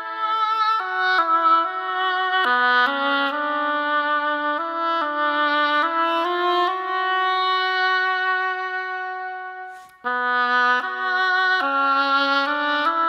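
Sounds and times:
instrumental melody: 0:00.0 - 0:13.0.

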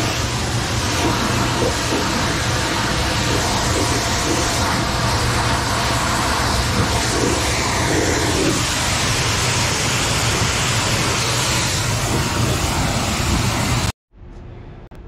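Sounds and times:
motor humming: 0:00.0 - 0:13.8
pressure washer spraying water: 0:00.0 - 0:13.9.

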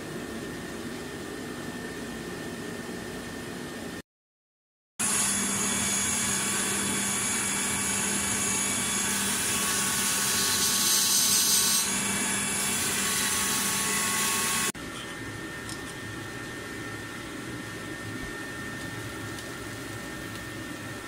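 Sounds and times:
belt grinder humming and whining: 0:05.0 - 0:21.0.

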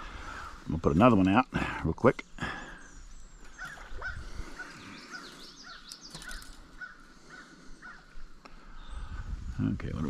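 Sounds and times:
thin bird chirps: 0:02.7 - 0:08.0
bird calling repeatedly: 0:02.8 - 0:08.2.

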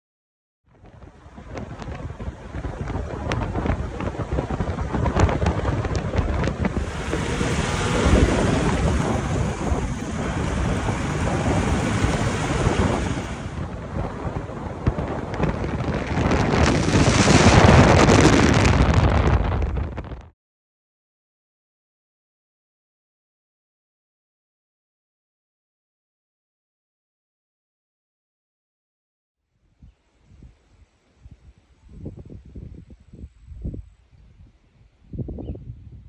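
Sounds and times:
wind buffeting microphone: 0:00.7 - 0:20.3, 0:29.7 - 0:36.0
tyre and road noise: 0:00.8 - 0:20.2.

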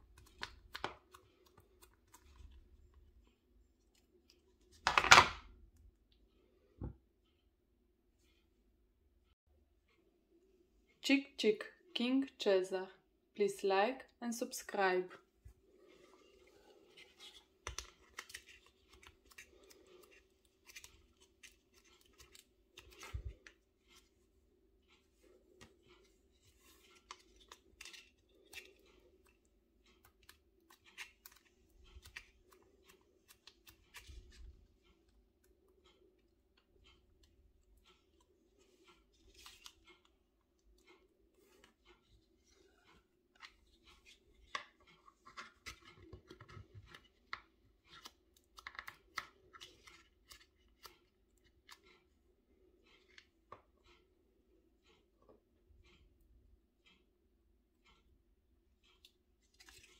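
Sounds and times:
crisp cutting and crunching clicks: 0:26.9 - 0:34.4.

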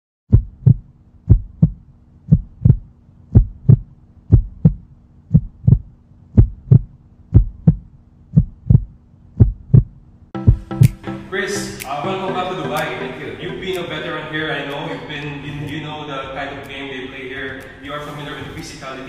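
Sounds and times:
faint low hum: 0:00.3 - 0:10.4
heartbeat thumps: 0:00.3 - 0:11.0.

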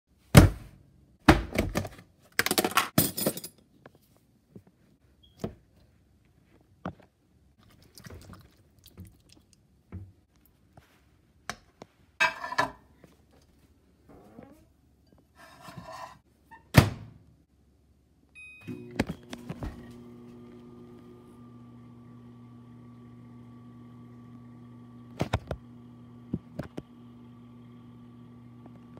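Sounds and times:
microwave keypad beeps: 0:18.4 - 0:19.4
microwave humming: 0:18.4 - 0:28.9.

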